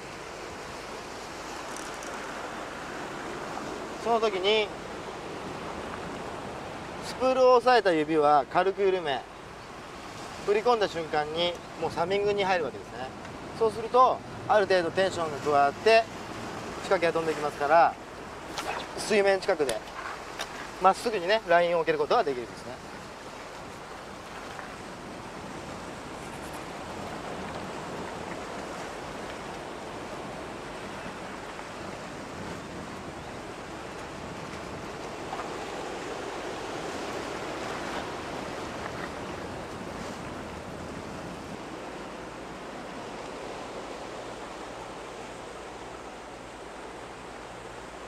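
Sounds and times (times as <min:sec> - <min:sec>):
wind: 0:00.0 - 0:48.0.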